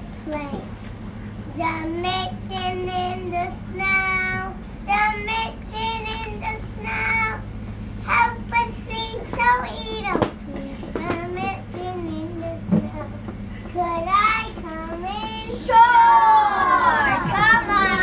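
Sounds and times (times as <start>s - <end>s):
steady low hum: 0.0s - 18.0s
young children singing: 13.8s - 18.0s.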